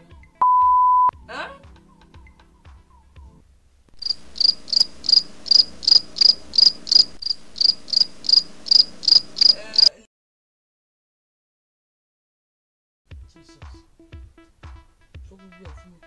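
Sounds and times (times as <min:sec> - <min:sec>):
cricket chirping: 0:04.0 - 0:10.0.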